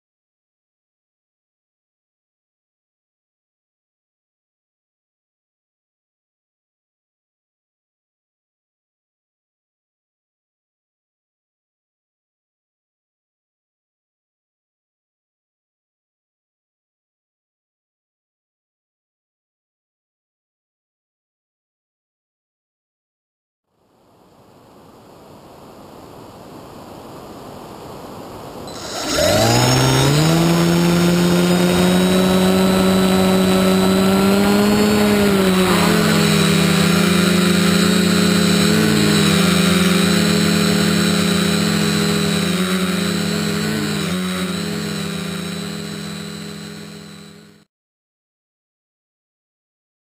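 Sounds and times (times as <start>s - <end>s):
drone motors humming: 27.4s - 47.6s.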